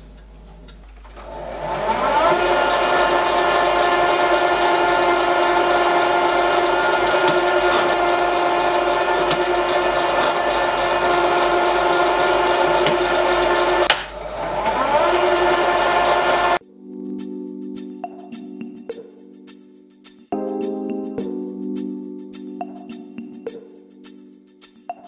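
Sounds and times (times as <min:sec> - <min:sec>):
milling machine spindle whine: 0:01.0 - 0:16.6.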